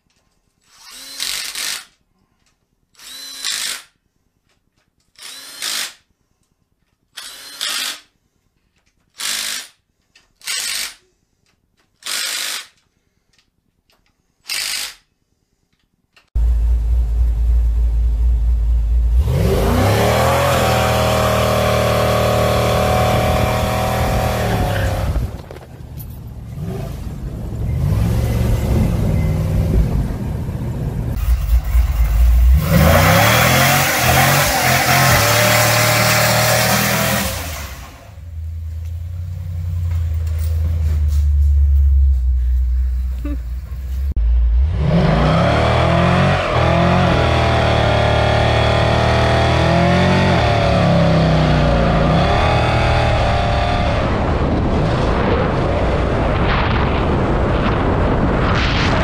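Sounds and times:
truck engine accelerating: 16.4 - 59.0.

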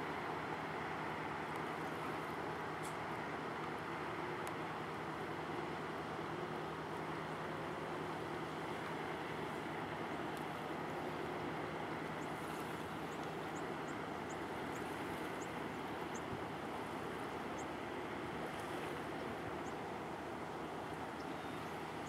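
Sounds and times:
low drone of a passing ship: 0.0 - 22.0
wind and water hiss: 0.0 - 22.0.

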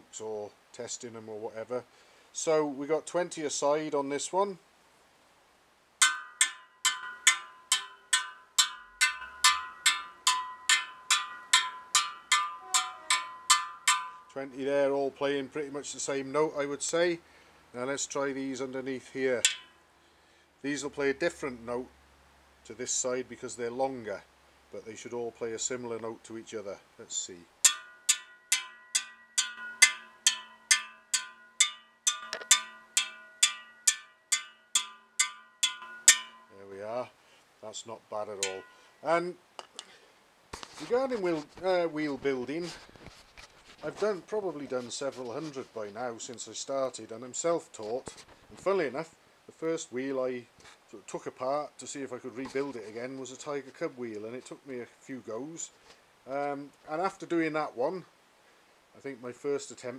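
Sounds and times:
metal spokes pinging: 6.0 - 14.7, 18.6 - 19.9, 27.6 - 36.8, 38.2 - 39.8.

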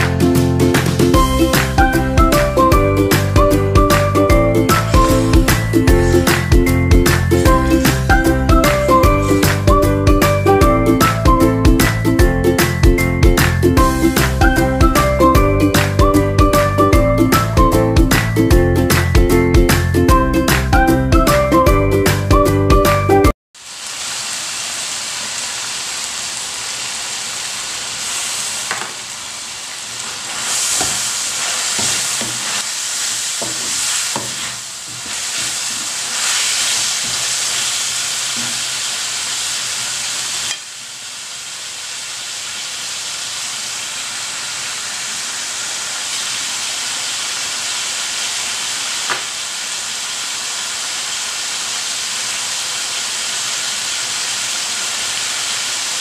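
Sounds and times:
meat sizzling in a wok: 0.0 - 12.0, 12.6 - 16.7, 23.6 - 56.0
wooden spatula scraping a pan: 30.0 - 38.7.

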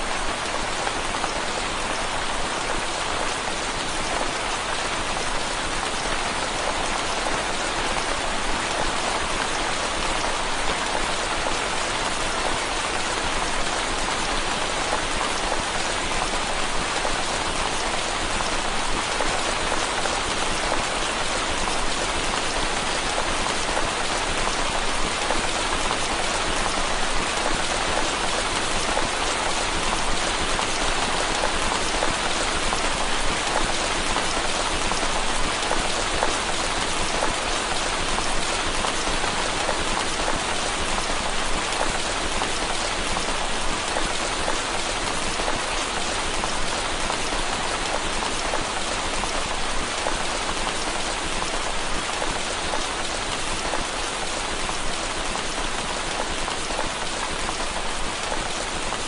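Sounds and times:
rain on window glass: 0.0 - 59.0.

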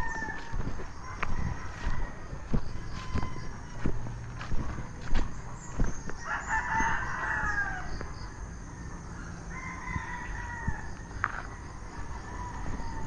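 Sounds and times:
rooster crowing: 0.0 - 4.6, 6.2 - 8.0, 8.8 - 13.0
footsteps in grass: 0.0 - 7.1.

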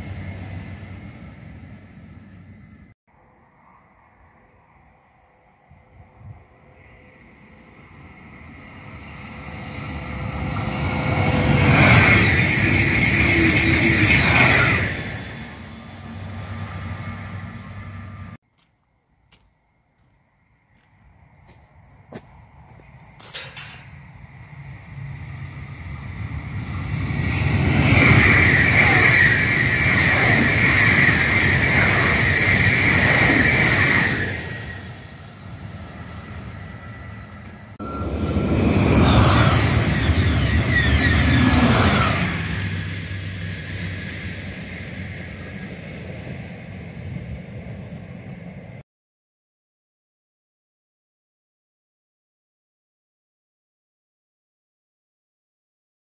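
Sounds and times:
high whine of carriages: 0.0 - 3.0, 4.3 - 18.4, 21.0 - 48.8
high-speed train passing: 0.0 - 18.4, 20.8 - 48.8
high steady whistling tone: 5.2 - 18.4, 24.1 - 46.0.

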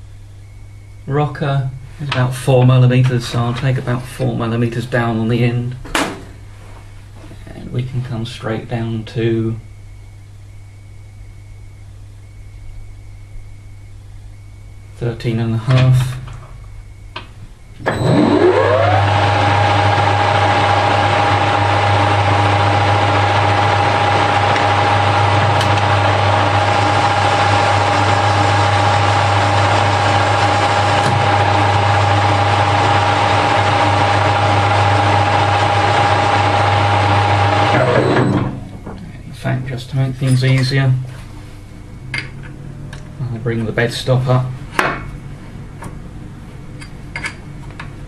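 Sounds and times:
lathe whine: 17.8 - 39.2.

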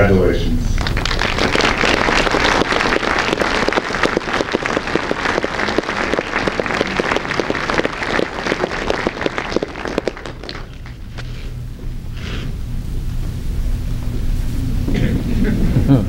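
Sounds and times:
audience applauding: 0.8 - 11.5.

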